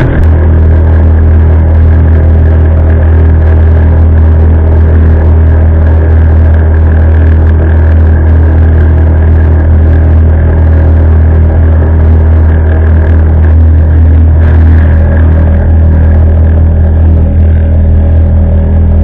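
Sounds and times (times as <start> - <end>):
motorboat engine drone: 0.0 - 19.0.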